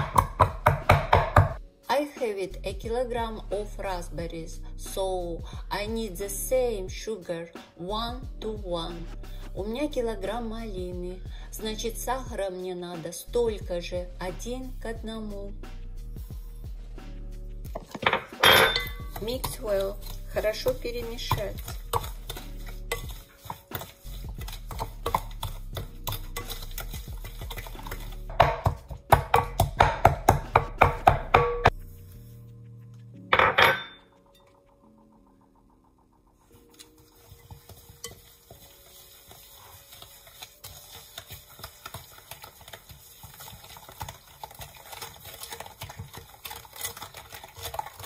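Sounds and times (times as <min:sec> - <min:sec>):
wooden spoon mashing in glass bowl: 0:00.0 - 0:01.6, 0:17.7 - 0:32.0, 0:36.5 - 0:48.0.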